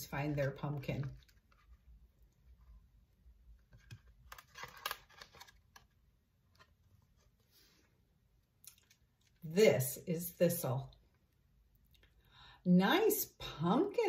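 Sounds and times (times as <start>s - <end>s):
cardboard book pages turning: 0.3s - 2.8s, 3.5s - 7.8s.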